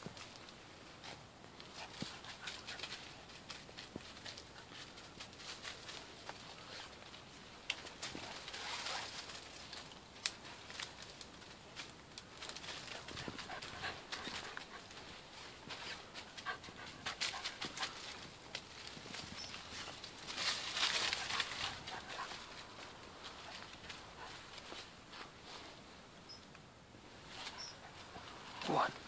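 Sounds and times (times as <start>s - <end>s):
rustling leaves: 0.0s - 29.0s
twigs crackling: 1.5s - 25.8s, 26.5s - 29.0s
puppy panting: 12.8s - 18.2s, 20.9s - 24.6s, 27.4s - 28.7s.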